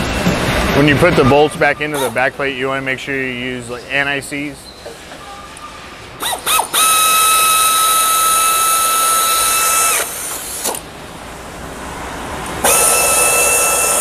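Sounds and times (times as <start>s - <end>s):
power tool whine driving bolts: 1.4s - 2.3s, 6.2s - 10.9s, 12.6s - 14.0s.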